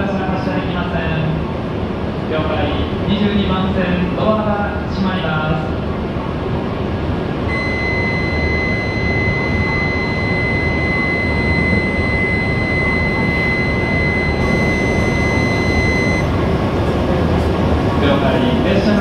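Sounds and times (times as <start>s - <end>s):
train and station hum: 0.0s - 19.0s
high electronic warning tone: 7.5s - 16.5s.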